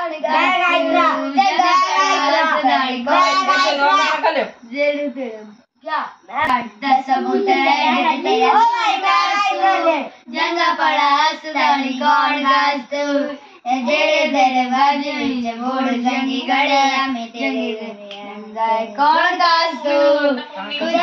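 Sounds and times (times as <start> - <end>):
children singing: 0.0 - 4.3, 6.8 - 21.0.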